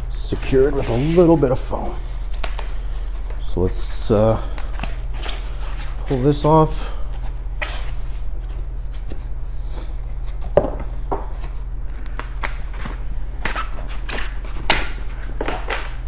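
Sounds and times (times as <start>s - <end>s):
steady low hum: 0.0s - 16.0s
foam and cardboard rustling: 0.2s - 3.9s.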